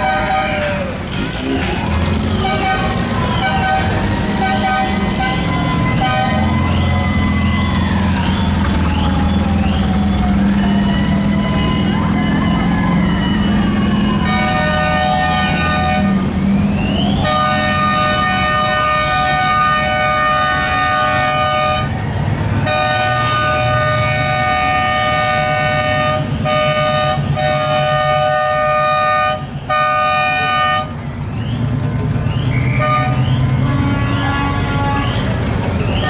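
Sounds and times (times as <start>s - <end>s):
car horns blasting: 0.0s - 1.5s, 2.1s - 22.0s, 22.6s - 31.1s, 32.6s - 36.0s
engines rumbling low: 0.0s - 36.0s
siren wailing: 2.3s - 20.3s.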